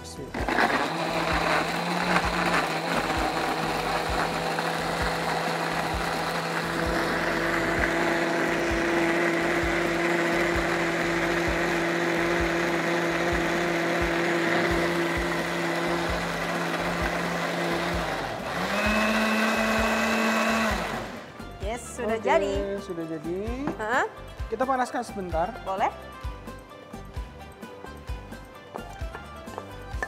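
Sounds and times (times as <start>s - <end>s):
electric blender running: 0.3s - 21.6s.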